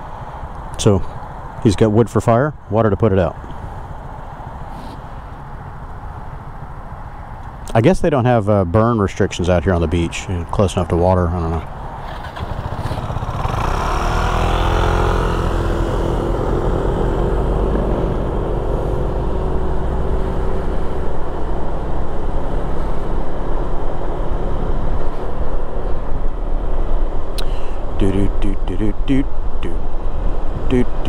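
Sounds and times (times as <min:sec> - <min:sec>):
wind noise rumble: 0:07.8 - 0:31.0
scooter engine: 0:11.8 - 0:25.0.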